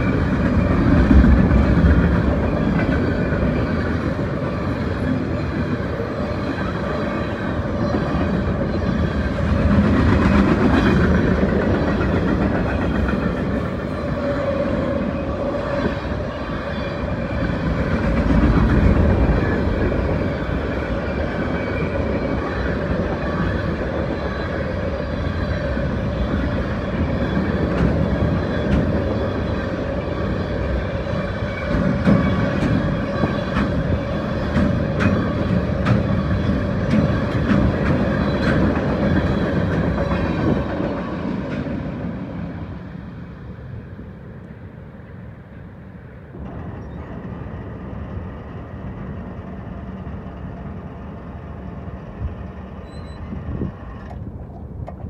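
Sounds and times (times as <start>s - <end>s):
train wheels clicking: 0.0s - 14.5s, 25.7s - 42.2s
train wheels rumbling on rail: 0.0s - 55.0s.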